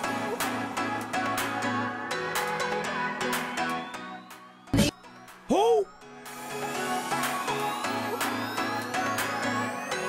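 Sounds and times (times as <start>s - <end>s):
electronic music with steady beat: 0.0s - 10.0s.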